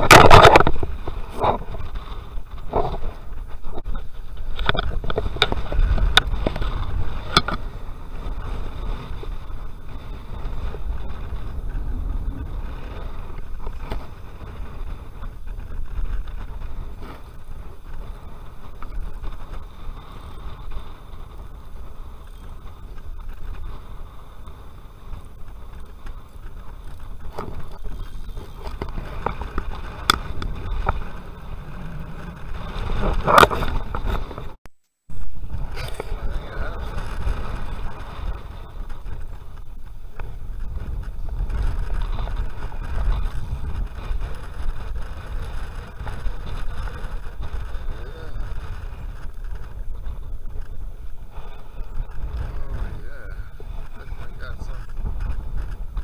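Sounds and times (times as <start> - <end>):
wind rumble on microphone: 0.0 - 56.0.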